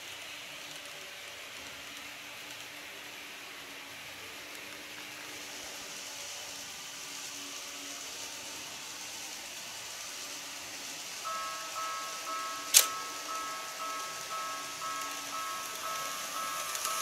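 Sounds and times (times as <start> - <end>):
faint hiss: 0.0 - 17.0
level crossing warning bell: 11.0 - 17.0.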